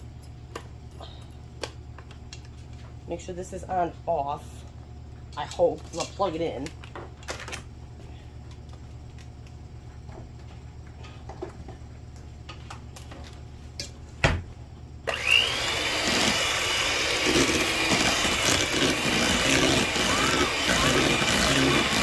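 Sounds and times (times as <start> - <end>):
electric hand mixer running: 15.1 - 22.0.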